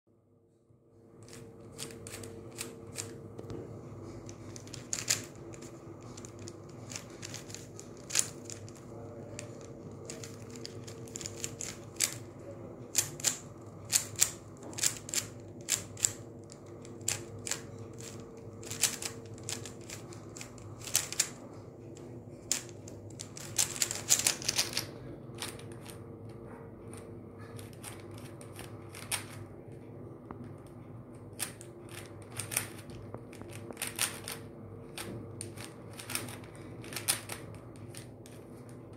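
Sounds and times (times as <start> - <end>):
low hum: 0.2 - 38.9
puzzle cube clicking: 4.3 - 12.3, 12.9 - 16.2, 16.8 - 21.4, 22.5 - 26.0, 31.4 - 34.4.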